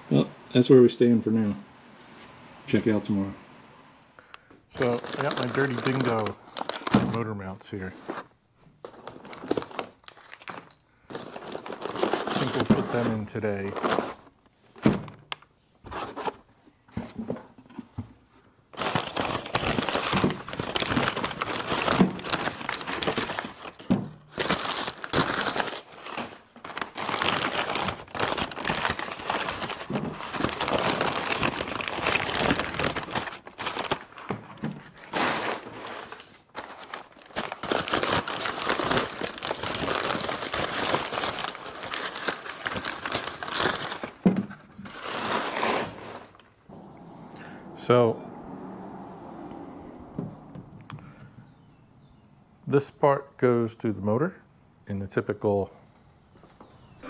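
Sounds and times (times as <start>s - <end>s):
packaging crinkling and tearing: 4.8s - 8.3s, 8.9s - 14.5s, 18.8s - 47.0s.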